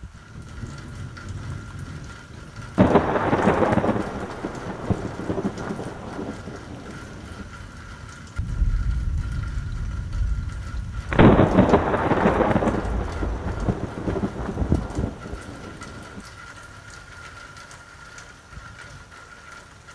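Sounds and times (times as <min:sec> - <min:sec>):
thunder rumbling: 0:00.0 - 0:16.3
steady rain: 0:00.0 - 0:19.9
thunder crack: 0:02.8 - 0:16.2.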